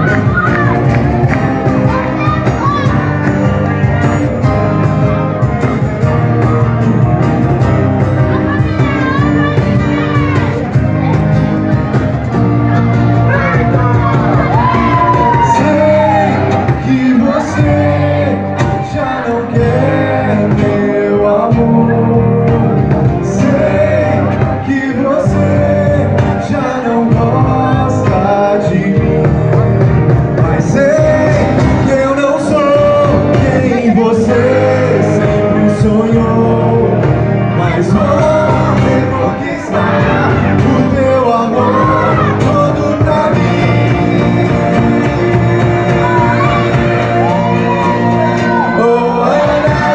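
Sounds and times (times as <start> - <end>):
drum beat: 0.0 - 49.9
electric guitars: 0.0 - 49.9
person singing lead vocal: 12.7 - 49.9.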